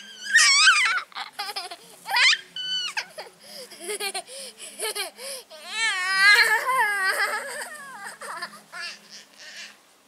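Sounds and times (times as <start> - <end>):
toddler squealing: 0.0 - 1.4, 2.1 - 3.2.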